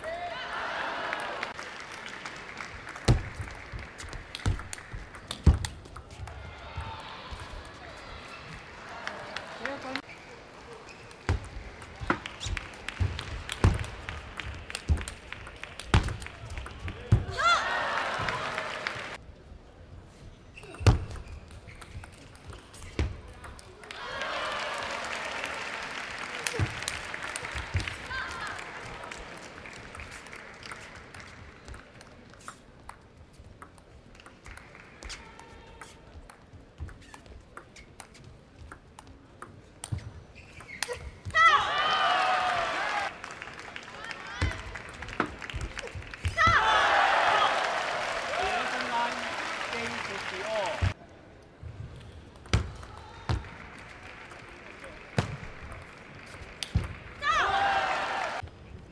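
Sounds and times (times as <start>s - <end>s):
applause: 0.0s - 5.3s, 8.7s - 10.0s, 11.7s - 16.9s, 17.6s - 19.2s, 23.8s - 32.1s, 34.4s - 35.5s, 42.1s - 51.0s, 52.9s - 58.4s
arena crowd hubbub: 0.0s - 19.2s, 41.3s - 52.0s, 52.7s - 58.5s
table tennis ball bouncing: 4.0s - 6.9s.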